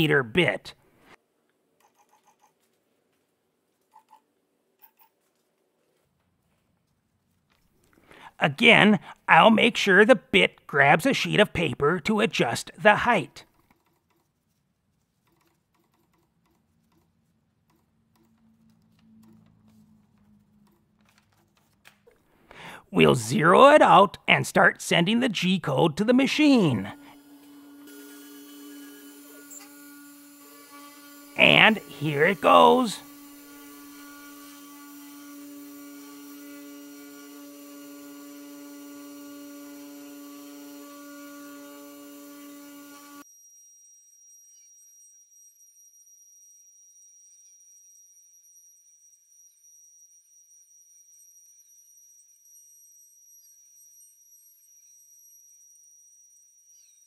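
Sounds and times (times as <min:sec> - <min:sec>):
stepper motor tones: 0:26.3 - 0:43.2
spindle motor humming: 0:26.7 - 0:43.2.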